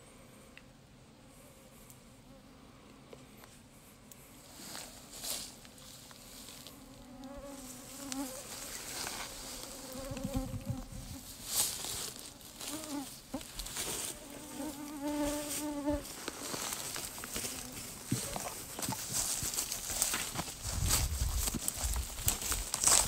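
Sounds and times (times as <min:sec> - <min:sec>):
rustling through grass: 0:04.4 - 0:23.0
flying insect buzzing: 0:06.5 - 0:11.3, 0:12.1 - 0:18.4.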